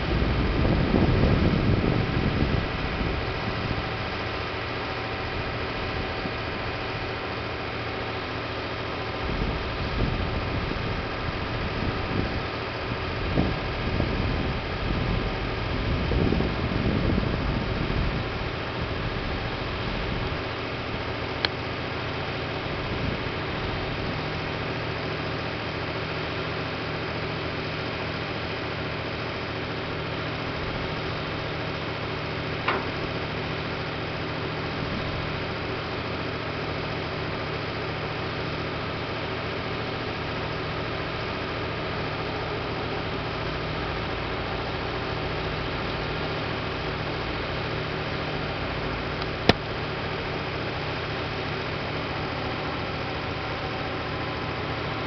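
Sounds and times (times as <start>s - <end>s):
diesel engine humming: 0.0s - 55.0s.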